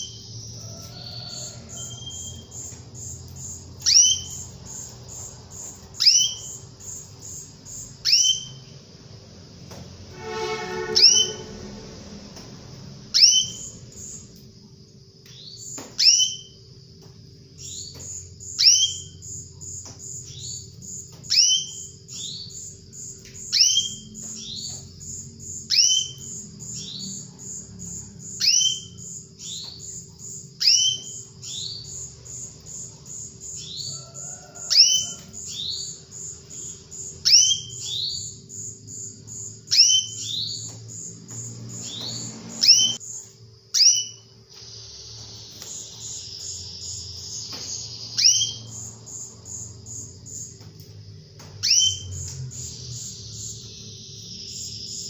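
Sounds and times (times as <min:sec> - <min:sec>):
canary call notes: 0:00.0 - 0:08.6, 0:10.1 - 0:12.1, 0:30.6 - 0:43.0
very high bird notes: 0:10.1 - 0:12.0.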